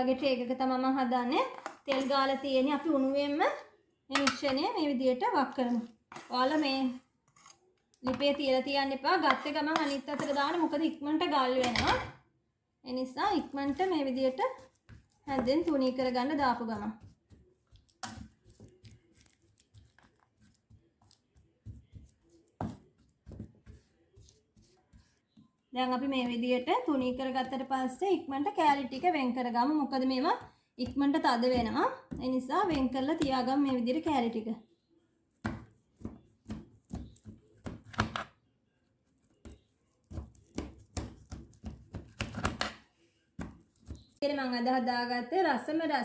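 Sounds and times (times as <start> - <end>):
spoon scraping metal tray: 9.1 - 10.8
knife cutting through brittle: 17.8 - 21.4.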